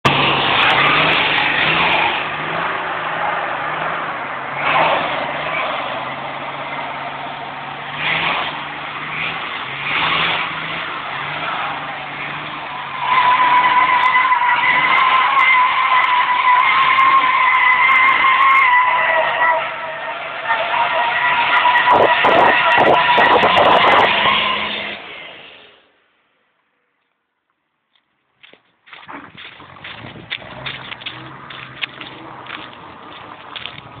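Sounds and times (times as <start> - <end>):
engine revving: 0.0 - 6.2, 7.8 - 17.3, 21.4 - 25.7, 29.1 - 34.0
tyres squealing: 9.1 - 25.2.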